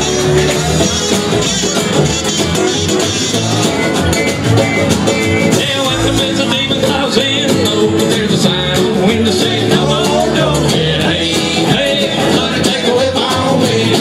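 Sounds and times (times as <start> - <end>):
acoustic guitar strumming: 0.0 - 14.0
banjo: 0.0 - 14.0
person singing: 5.4 - 14.0.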